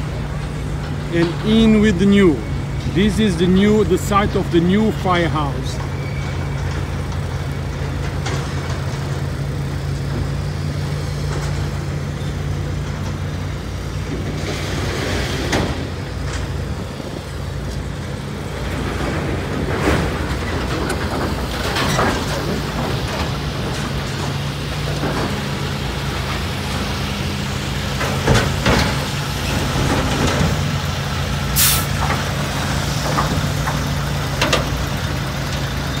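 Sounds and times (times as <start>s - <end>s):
heavy diesel machinery running: 0.0s - 36.0s
metal and debris clanking: 18.6s - 26.9s
short sharp hiss: 31.6s - 32.0s.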